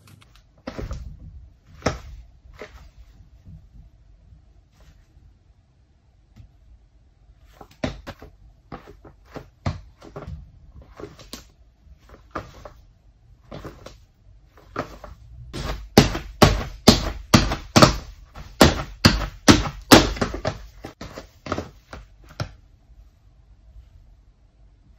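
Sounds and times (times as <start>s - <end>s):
shoes landing on wooden floor: 0.6s - 1.1s, 1.7s - 2.9s, 7.6s - 11.5s, 13.5s - 14.0s, 14.6s - 22.6s.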